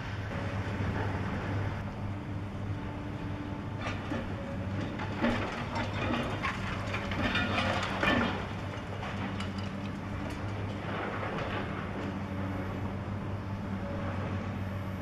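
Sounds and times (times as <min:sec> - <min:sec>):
excavator diesel engine running: 0:00.0 - 0:15.0
metal and concrete clanking: 0:03.8 - 0:11.7.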